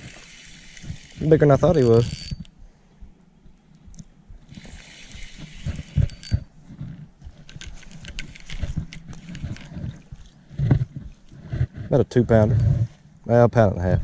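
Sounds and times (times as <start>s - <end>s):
fishing rod and reel clicks: 0.0s - 2.6s, 4.0s - 10.2s.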